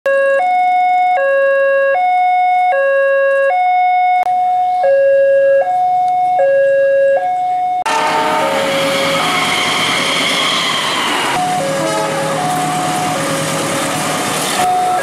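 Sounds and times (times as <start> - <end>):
two-tone crossing alarm chime: 0.1 - 7.9, 11.4 - 13.2.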